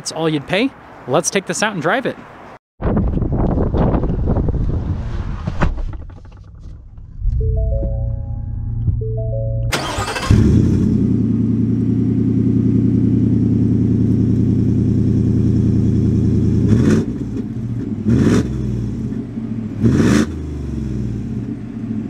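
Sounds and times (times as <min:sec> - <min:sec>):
truck engine idling and revving: 0:06.0 - 0:22.0.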